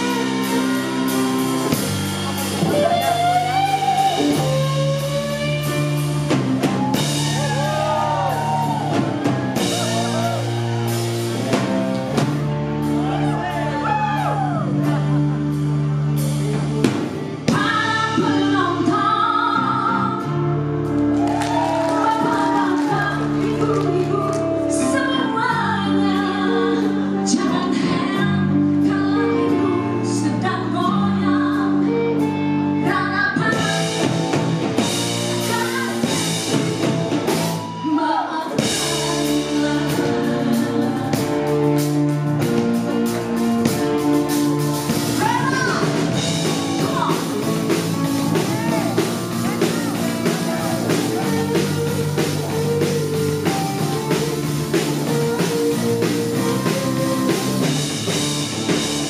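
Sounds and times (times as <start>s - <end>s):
live band playing: 0.0s - 59.0s
drum beat: 6.0s - 14.1s, 42.4s - 59.0s
woman singing: 17.5s - 20.4s, 21.7s - 34.1s, 37.8s - 42.0s.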